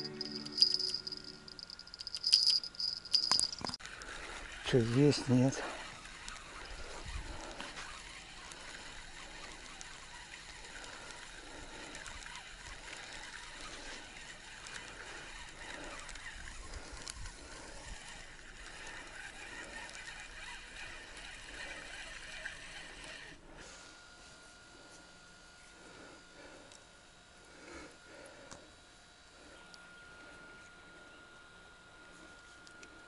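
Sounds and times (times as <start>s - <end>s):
thin high tone: 0.0s - 3.8s.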